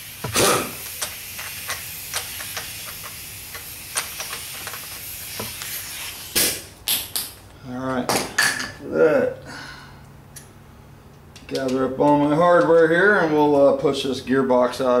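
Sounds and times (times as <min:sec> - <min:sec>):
impact wrench bursts: 0:00.0 - 0:05.6
air hiss: 0:00.0 - 0:06.7.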